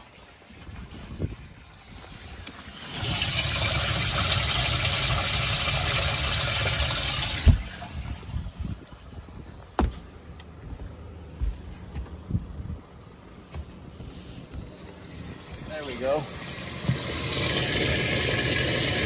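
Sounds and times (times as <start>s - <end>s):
pump spraying water: 1.8s - 8.3s, 15.1s - 19.0s
dull thumps: 9.7s - 10.1s.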